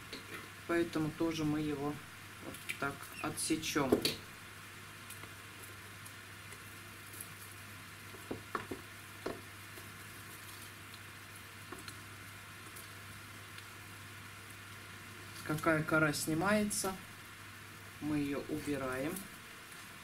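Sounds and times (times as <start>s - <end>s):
background hiss and low hum: 0.0s - 20.0s
bark chips crackling and clicking: 5.0s - 13.7s.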